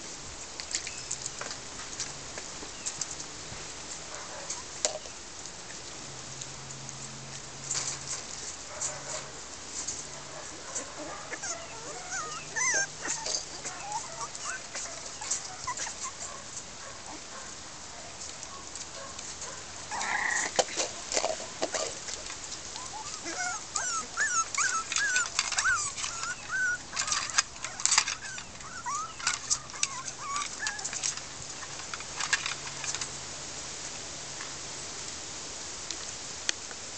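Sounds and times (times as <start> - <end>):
puppies whining and squealing: 10.7 - 16.3, 22.8 - 31.2.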